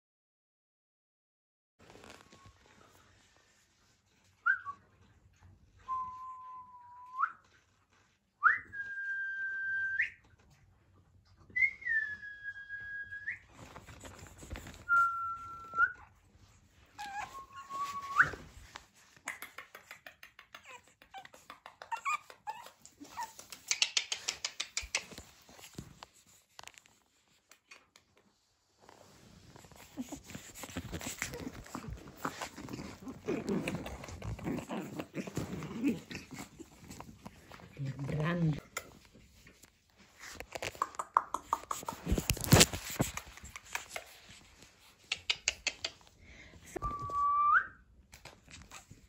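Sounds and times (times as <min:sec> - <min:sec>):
puppy whining: 0:14.0 - 0:18.8, 0:19.7 - 0:25.9, 0:29.4 - 0:39.2.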